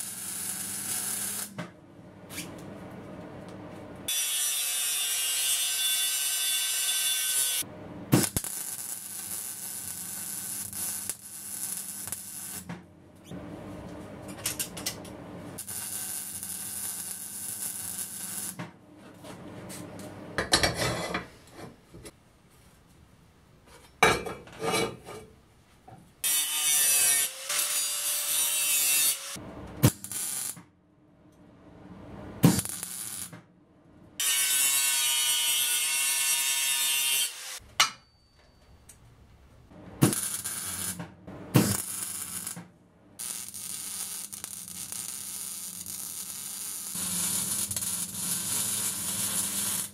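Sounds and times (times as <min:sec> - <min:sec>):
welding crackle: 0:00.0 - 0:01.6, 0:04.2 - 0:12.7, 0:15.6 - 0:18.6, 0:29.8 - 0:30.6, 0:32.4 - 0:33.3, 0:40.0 - 0:41.0, 0:41.6 - 0:42.6, 0:43.2 - 0:49.9
angle grinder cutting steel: 0:26.3 - 0:29.4, 0:34.2 - 0:37.6.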